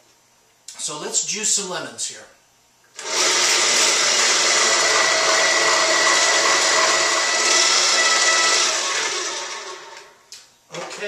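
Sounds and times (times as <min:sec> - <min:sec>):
electric juicer motor whirring: 0:03.0 - 0:10.2.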